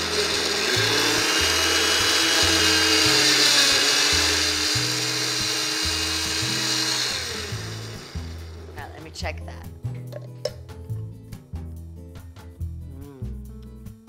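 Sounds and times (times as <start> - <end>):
blender running: 0.0 - 8.9
background music with bass: 0.0 - 14.0.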